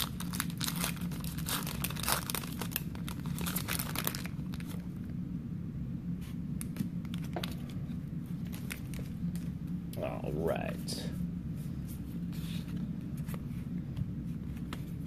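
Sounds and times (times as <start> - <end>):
foil wrapper tearing and crinkling: 0.0 - 4.8.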